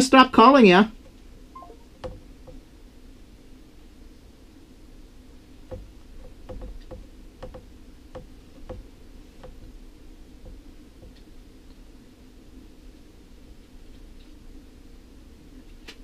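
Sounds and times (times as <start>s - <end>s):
steady low hum: 0.0s - 15.7s.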